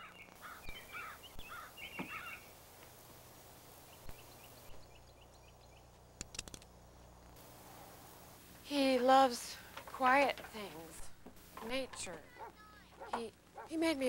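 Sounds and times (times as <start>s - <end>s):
birds chirping: 0.0s - 3.0s, 3.7s - 6.2s, 9.6s - 14.0s
quick clicks: 6.2s - 6.7s.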